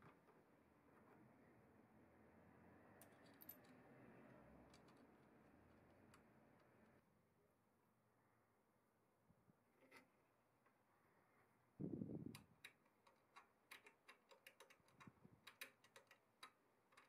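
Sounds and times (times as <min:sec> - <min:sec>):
small metallic clicks and taps: 0:12.3 - 0:17.0.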